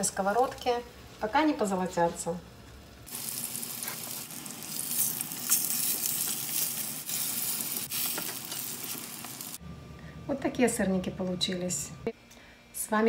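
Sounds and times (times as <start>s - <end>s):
pancakes sizzling in oil: 3.1s - 9.6s.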